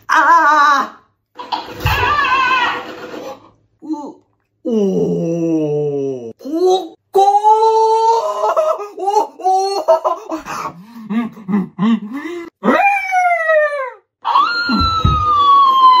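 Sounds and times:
long falling cries: 12.6 - 16.0.

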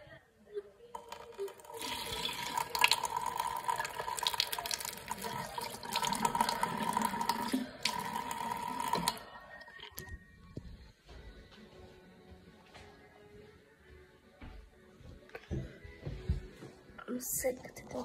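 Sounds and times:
tap water splashing into sink: 1.0 - 9.2.

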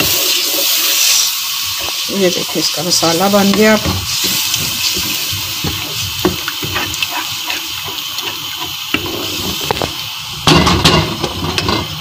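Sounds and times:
food sizzling in a metal pot: 0.0 - 12.0
spatula scraping and tapping pot: 1.8 - 10.0.

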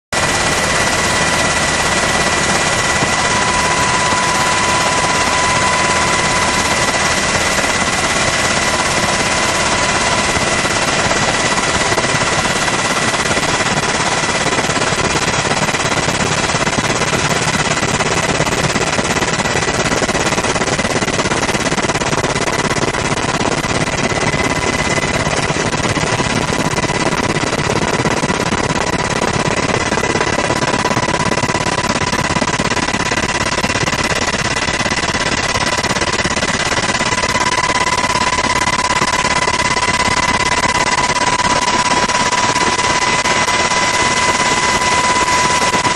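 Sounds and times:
helicopter rotor and engine: 0.1 - 45.9
high whine: 0.2 - 17.2.

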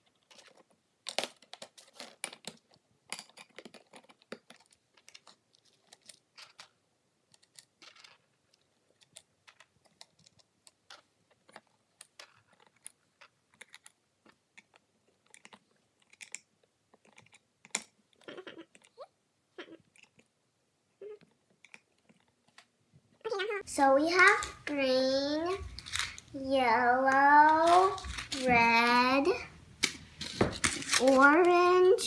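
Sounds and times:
plastic toy parts clicking: 0.1 - 19.0, 25.8 - 26.3, 29.8 - 31.3.

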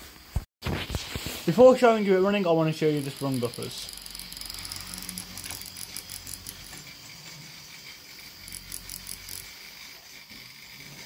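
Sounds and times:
model train clicking and rattling: 2.8 - 11.0
model train motor humming: 2.8 - 11.0.

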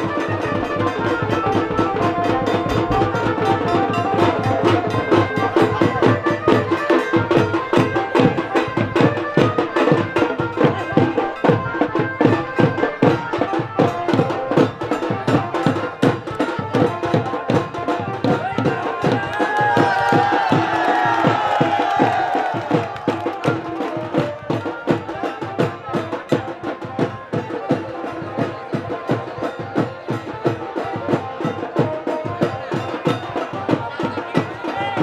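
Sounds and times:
fast steady drum beat: 0.0 - 35.0.

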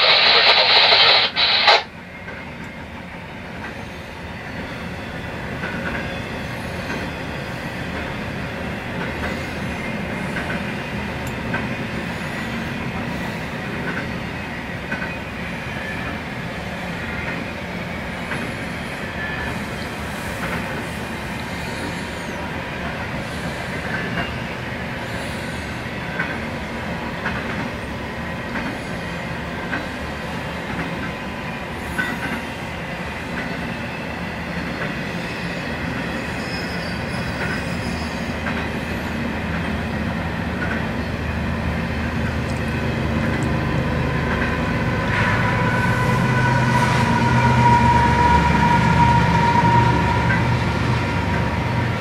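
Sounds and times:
train wheels rumbling on rail: 0.0 - 52.0
high wheel squeal: 35.2 - 38.3, 45.2 - 51.7.

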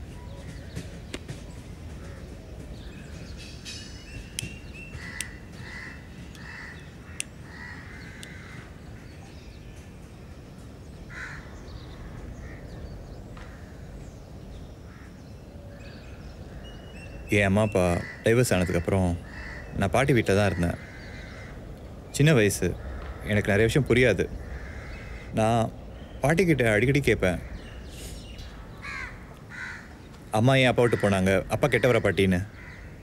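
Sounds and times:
crows cawing: 1.9 - 2.4, 4.9 - 9.2, 11.1 - 14.0, 14.9 - 17.0, 17.7 - 33.0
low outdoor rumble: 4.5 - 33.0.

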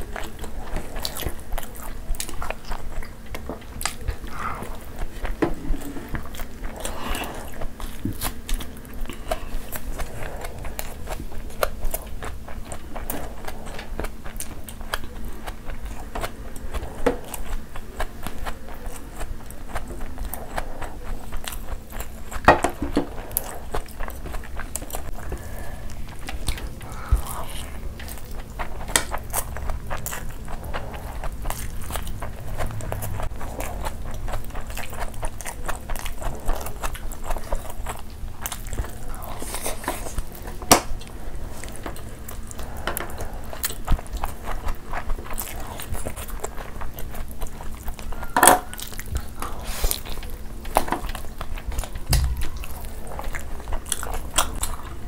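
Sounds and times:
chewing and wet mouth sounds: 0.0 - 55.0.

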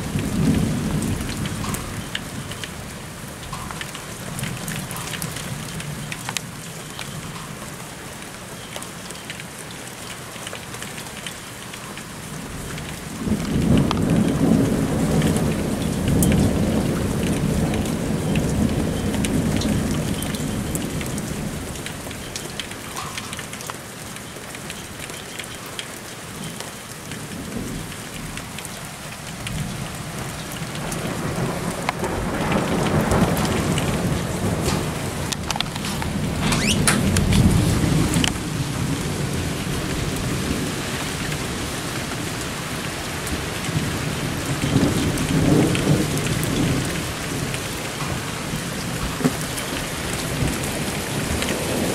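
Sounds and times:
steady rain falling: 0.0 - 51.9
thunder rumbling: 12.4 - 22.0, 29.3 - 42.4, 43.3 - 51.9.

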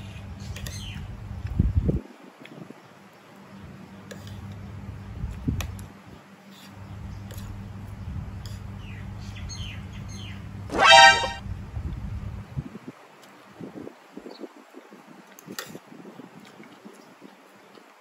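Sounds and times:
loud pitched call: 10.7 - 11.4.

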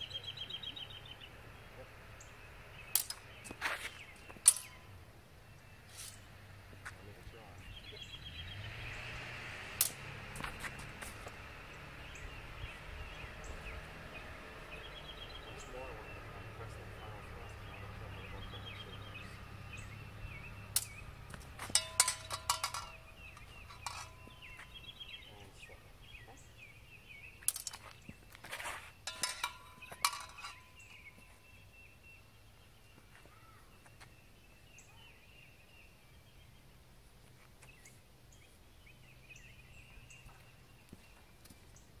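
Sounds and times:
birds chirping faintly: 0.0 - 42.0
swords clashing metallic clanks: 3.0 - 3.3, 4.4 - 4.9, 21.7 - 24.6, 29.0 - 31.0.

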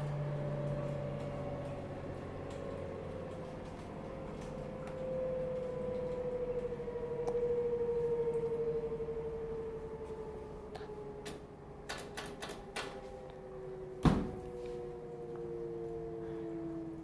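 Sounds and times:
washing machine whine: 0.0 - 17.0
sharp clicks: 11.2 - 13.0
loud thump: 14.0 - 14.4.

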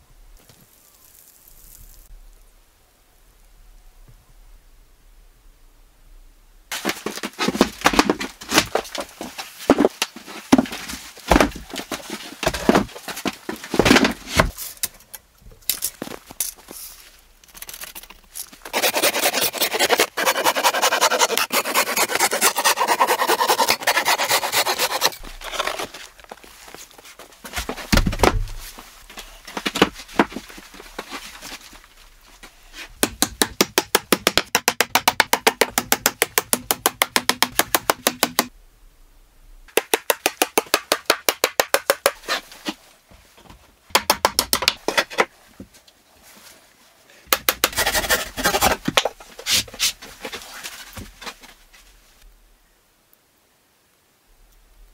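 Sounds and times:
wooden pallet clattering: 6.7 - 14.6, 25.2 - 31.8
handsaw cutting wood: 18.7 - 25.8, 47.6 - 48.8.

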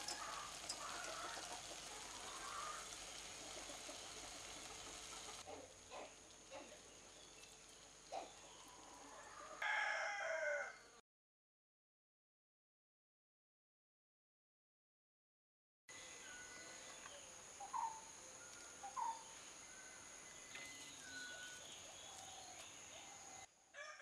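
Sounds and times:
steady hiss: 0.0 - 9.2, 15.9 - 23.4.

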